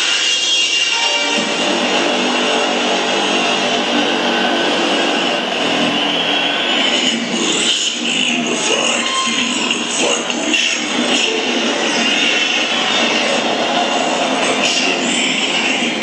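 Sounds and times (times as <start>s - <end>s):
electronic synth music: 0.0s - 7.3s
sweeping synth effects: 0.0s - 8.0s.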